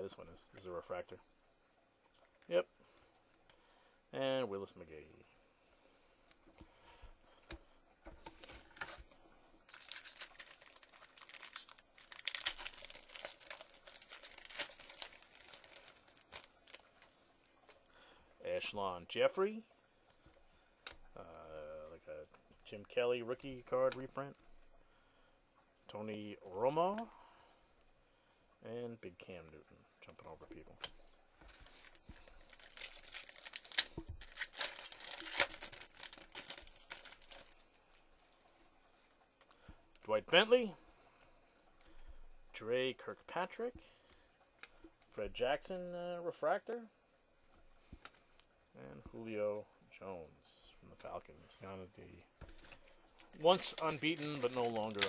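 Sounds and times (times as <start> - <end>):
foil wrapper crinkling and tearing: 8.4 - 17.1, 31.4 - 37.7, 52.5 - 55.0.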